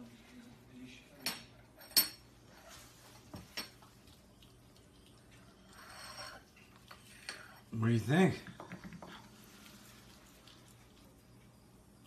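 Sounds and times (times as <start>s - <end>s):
puppy licking spoon: 3.4s - 7.3s.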